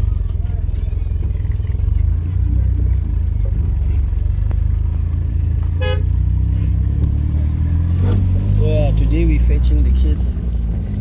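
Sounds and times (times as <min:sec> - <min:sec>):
car engine: 0:00.0 - 0:11.0
road rumble inside car: 0:00.0 - 0:11.0
car horn toot: 0:05.7 - 0:06.2.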